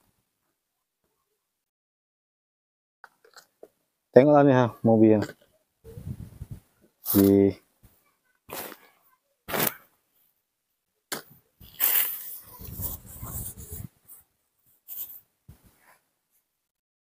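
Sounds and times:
rustling handling noise: 11.6 - 16.5.

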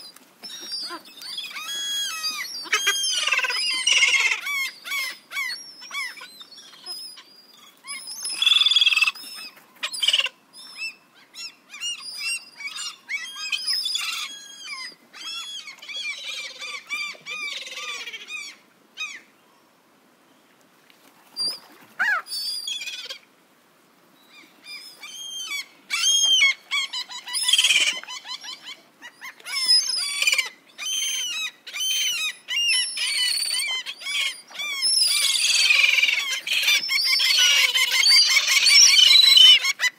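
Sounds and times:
gulls calling: 0.0 - 7.2, 24.4 - 39.9.

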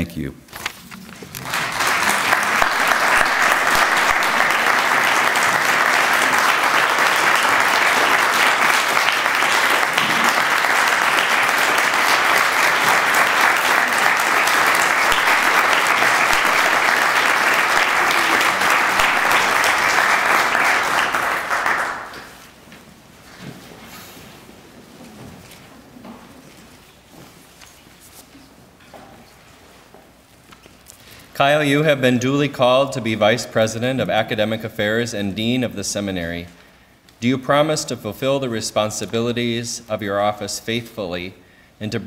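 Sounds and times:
audience applauding: 1.3 - 22.5.

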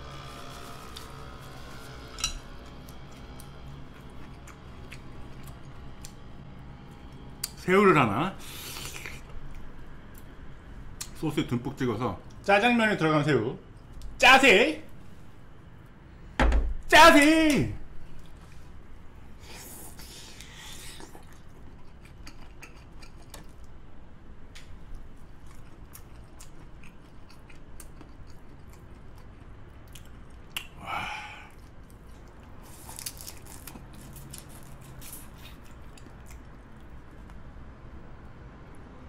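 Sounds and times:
chewing and biting prawn: 25.3 - 30.8, 31.5 - 37.1.

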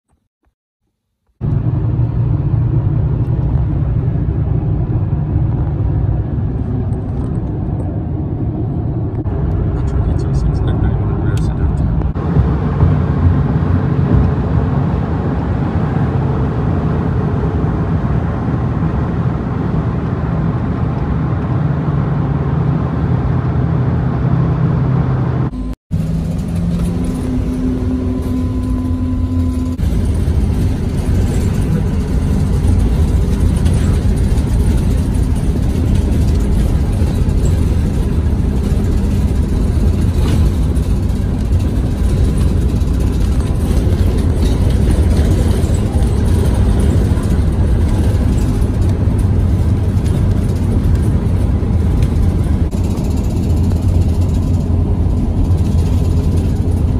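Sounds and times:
low road rumble: 1.0 - 56.9
bus engine hum: 1.4 - 56.9.

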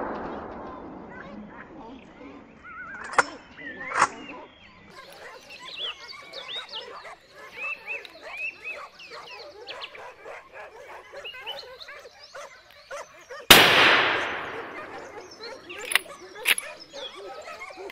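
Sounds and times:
rifle shot with echo: 0.0 - 2.3, 13.5 - 16.7
hunting dogs yelping and baying: 4.4 - 17.9.

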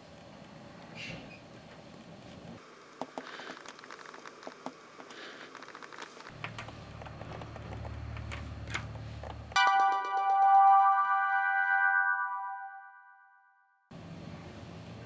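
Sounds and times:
gouge carving rubber clicks: 3.0 - 8.9.

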